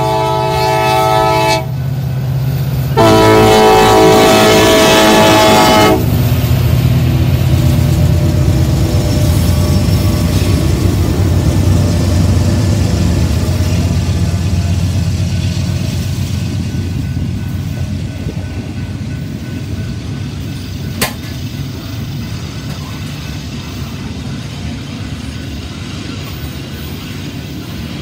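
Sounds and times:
diesel locomotive engine drone: 0.0 - 28.0
steel wheels rumbling on rail: 0.0 - 28.0
sharp metal clank: 21.0 - 21.4.

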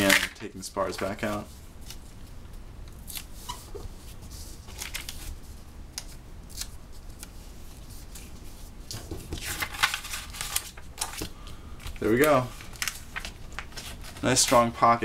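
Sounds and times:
tape and paper rustling: 3.0 - 14.8.

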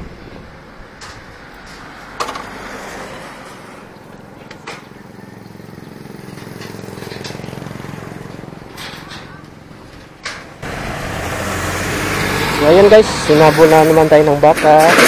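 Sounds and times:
motorcycle engine idling: 4.8 - 10.2.

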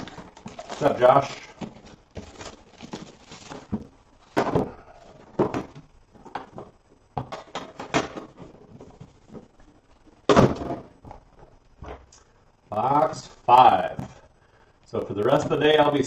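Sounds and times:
plastic wrap rustling and crinkling: 0.0 - 6.7.

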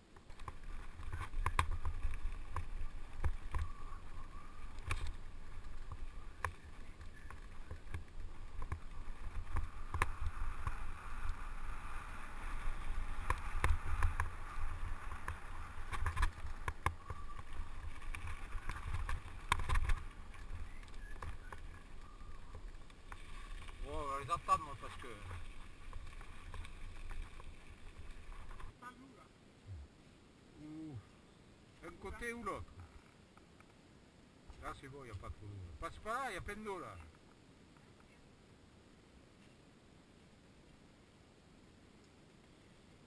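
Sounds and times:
bike tyres on dirt: 0.0 - 28.8
bike knocking and rattling: 0.2 - 24.0.

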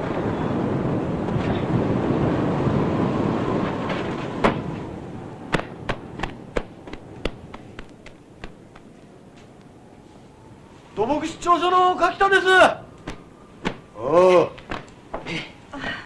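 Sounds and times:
storm rumble roaring: 0.0 - 12.0
sharp cracks and snaps: 5.5 - 9.8, 13.0 - 13.9, 14.6 - 15.0.

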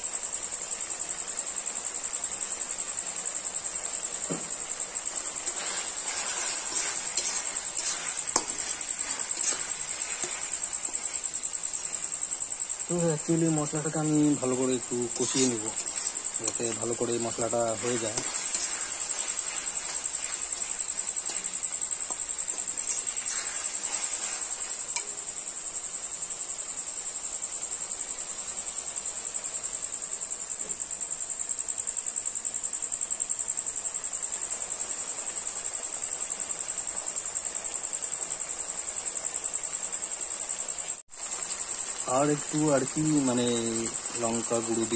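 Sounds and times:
cricket trilling: 0.0 - 44.9
metal spatula scraping pan: 5.0 - 12.2, 14.1 - 25.2.

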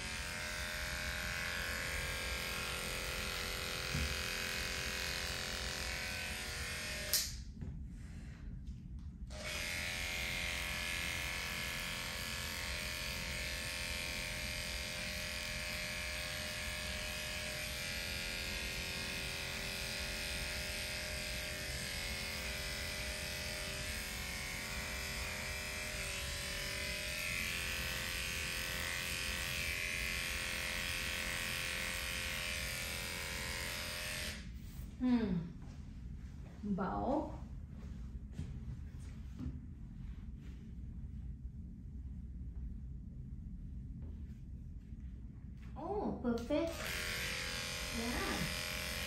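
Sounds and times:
electric dog clippers buzzing: 0.0 - 7.5, 9.3 - 34.6, 46.4 - 49.0.

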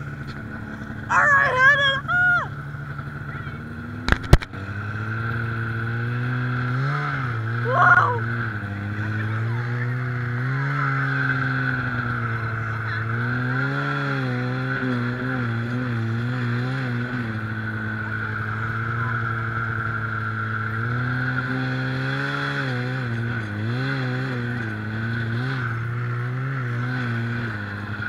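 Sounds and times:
snowmobile engine revving: 0.0 - 28.0.

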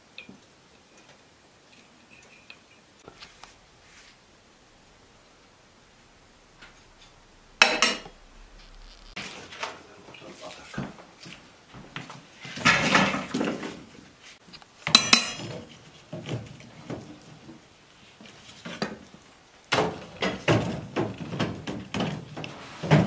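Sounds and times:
sharp ringing metal clank: 6.8 - 8.5.

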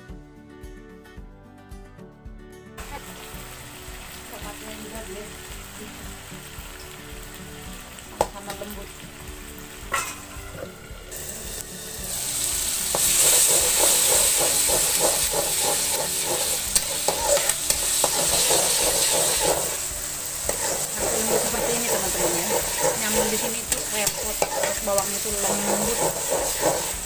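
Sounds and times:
food sizzling in oil: 2.8 - 27.0
metal spatula scraping pan: 9.9 - 10.8, 12.5 - 27.0.

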